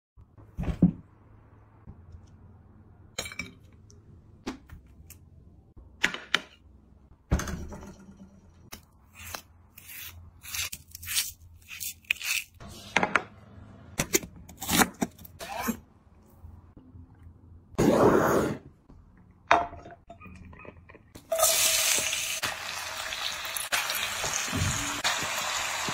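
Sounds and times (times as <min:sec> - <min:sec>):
knife cutting meat and onion: 0:08.7 - 0:12.7.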